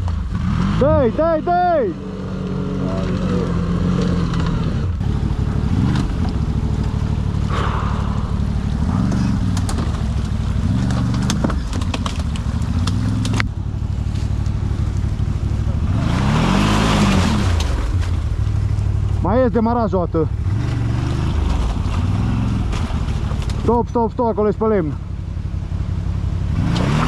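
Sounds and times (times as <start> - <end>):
atv engine revving: 0.0 - 27.0
sharp knocks and snaps: 9.0 - 15.0, 22.7 - 23.6.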